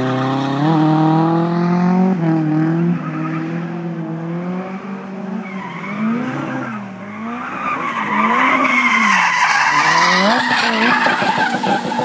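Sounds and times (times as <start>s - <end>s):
car engine at high revs: 0.0s - 12.0s
tyre squeal: 5.4s - 12.0s.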